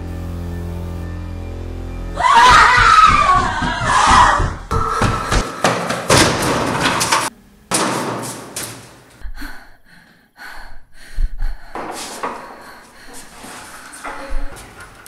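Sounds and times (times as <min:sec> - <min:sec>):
loud slams and thuds: 0:02.8 - 0:08.8.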